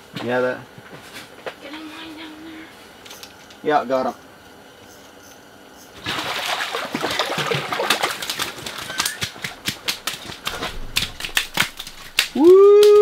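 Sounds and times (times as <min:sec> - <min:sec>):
fish splashing in water: 0:06.0 - 0:12.4
fish slapping on ice: 0:06.0 - 0:13.0.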